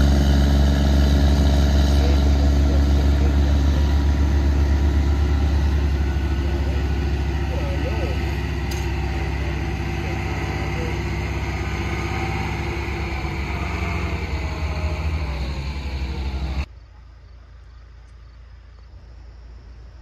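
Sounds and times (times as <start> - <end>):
diesel tractor engines running: 0.0 - 19.1
quiet outdoor background: 0.0 - 20.0.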